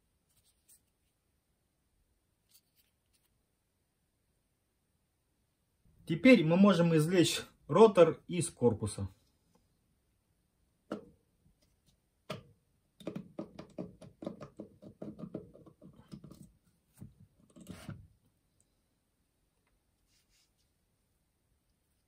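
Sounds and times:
small clicks and scrapes: 2.4s - 3.4s.

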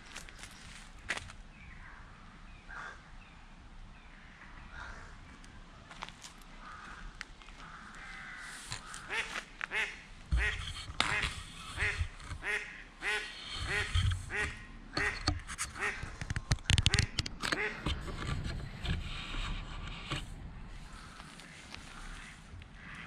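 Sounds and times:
duck quacking: 8.9s - 16.1s, 16.9s - 17.9s.

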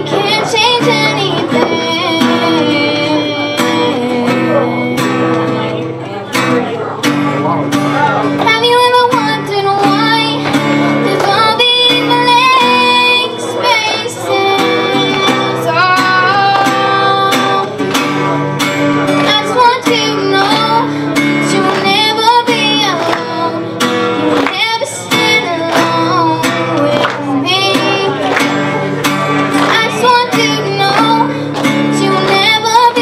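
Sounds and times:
girl singing: 0.0s - 6.2s, 8.3s - 18.2s, 18.9s - 28.6s, 29.5s - 33.0s
acoustic guitar strumming: 0.0s - 33.0s.

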